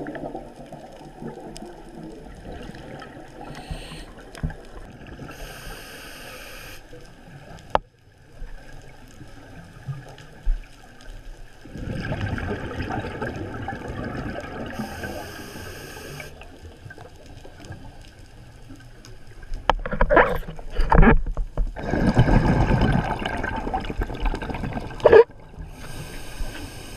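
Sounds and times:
exhaled bubbles gurgling: 0.0 - 5.8, 11.5 - 18.2, 21.7 - 26.9
regulator inhalation hiss: 3.4 - 4.2, 5.3 - 7.0, 14.8 - 16.4, 25.7 - 26.9.

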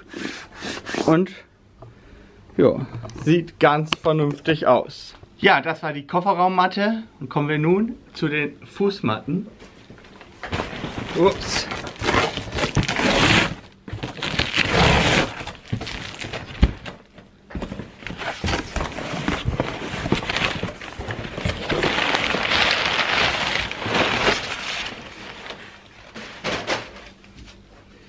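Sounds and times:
packing paper rustling: 10.0 - 27.2
tape ripping: 10.4 - 17.0, 18.0 - 25.6
cardboard flaps opening: 10.4 - 27.2.

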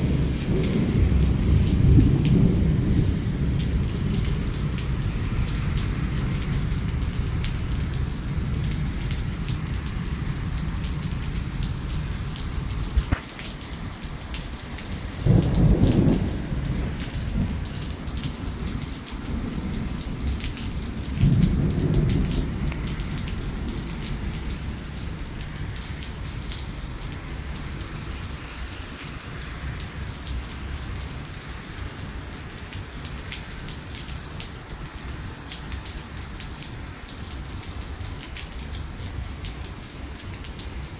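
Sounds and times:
thunder rumbling: 0.0 - 13.2, 14.9 - 26.7
heavy rain on pavement: 0.0 - 40.9.

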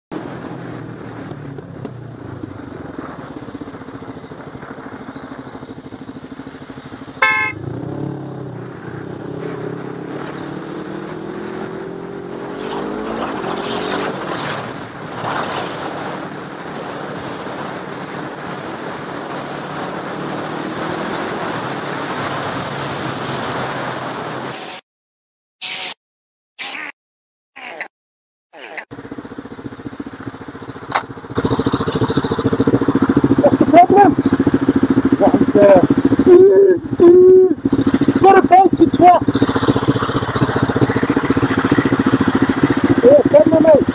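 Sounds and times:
road and wind noise: 0.1 - 24.8, 28.6 - 43.9
motorcycle engine: 0.2 - 24.4, 28.6 - 43.9
vehicle horn blast: 7.2 - 7.7.

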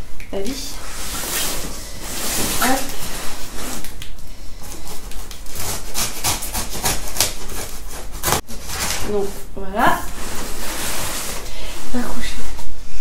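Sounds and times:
knife sawing through cardboard: 4.6 - 9.2.

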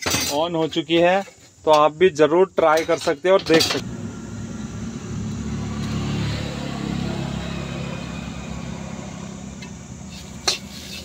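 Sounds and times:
vehicle engine passing by: 3.8 - 10.8.

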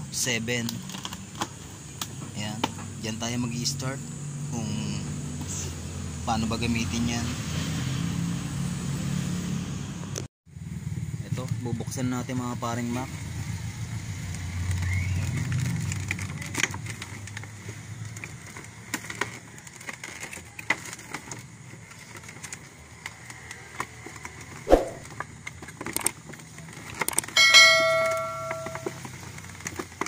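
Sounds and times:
bell ding sound effect: 27.4 - 29.0.

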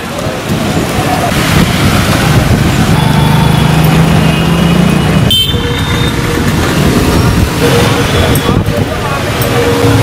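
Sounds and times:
motorcycles and cars driving past: 0.0 - 10.0.

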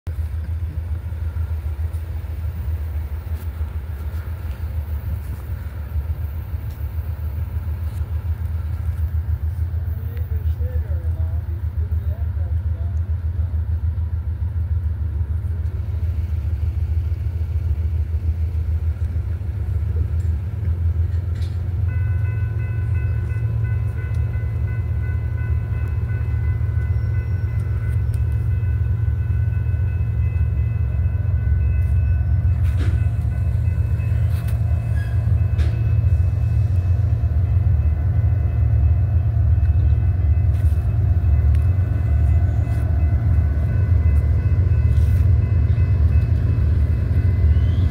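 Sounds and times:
train rumbling: 0.1 - 47.9.

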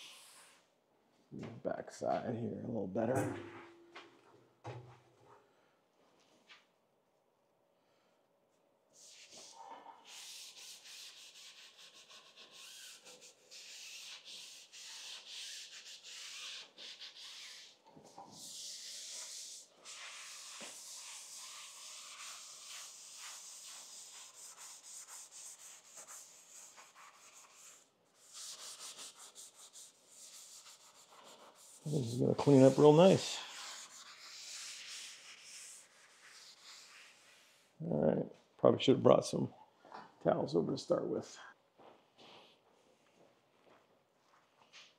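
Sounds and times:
abrasive pad scrubbing metal: 30.5 - 37.6.

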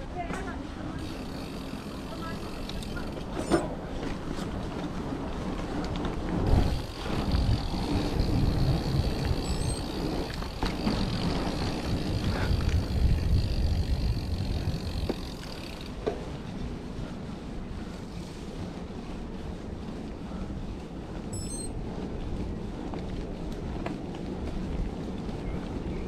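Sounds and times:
bike tyres rolling on gravel: 0.0 - 26.0
wind buffeting microphone: 0.0 - 26.0
bike knocking over bumps: 14.7 - 16.3.

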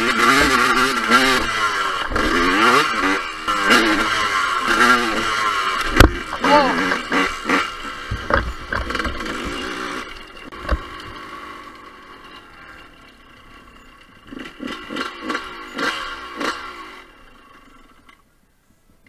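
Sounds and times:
dirt bike engine revving: 0.0 - 18.2
short thumps and knocks: 8.0 - 9.6.

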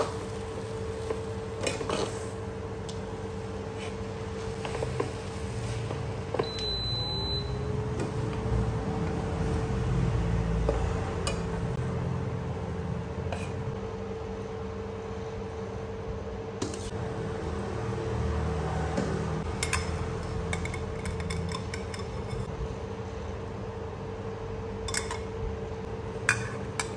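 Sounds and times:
electric cooktop hum: 0.0 - 26.9.

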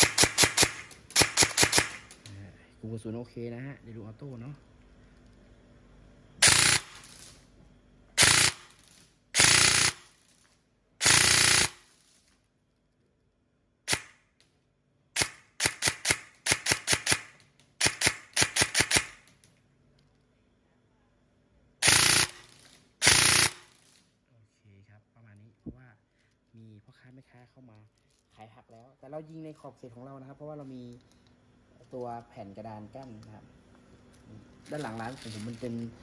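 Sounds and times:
airsoft rifle firing: 0.0 - 2.2, 6.4 - 7.2, 8.2 - 8.8, 9.4 - 10.1, 11.0 - 11.9, 13.9 - 14.2, 15.2 - 19.3, 21.8 - 23.7.

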